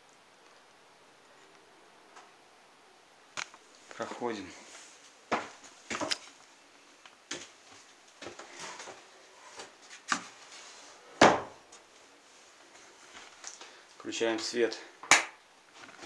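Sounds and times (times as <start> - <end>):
footsteps on wooden boards: 5.3 - 6.2
heavy wooden thump: 11.2 - 11.6.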